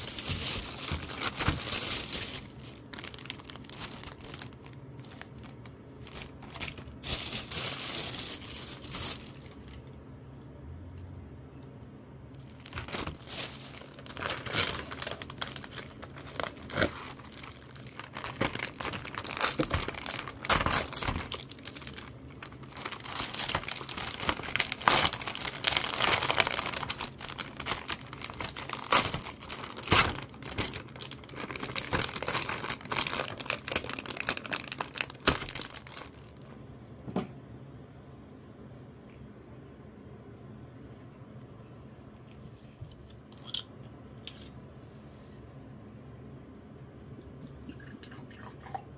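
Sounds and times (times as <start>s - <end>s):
plastic wrap crinkling and tearing: 0.0s - 9.9s, 12.4s - 36.6s.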